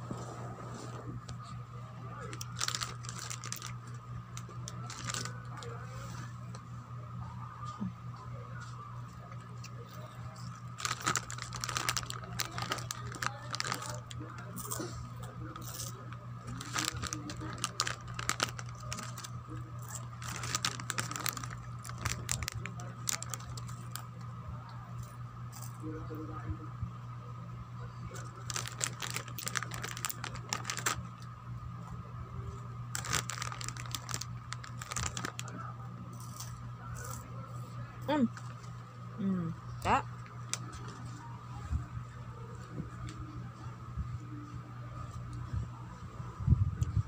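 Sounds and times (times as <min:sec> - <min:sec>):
steady low hum: 0:00.0 - 0:47.0
plastic packaging crinkling: 0:02.3 - 0:05.7, 0:10.7 - 0:24.1, 0:28.1 - 0:31.2, 0:32.9 - 0:35.6.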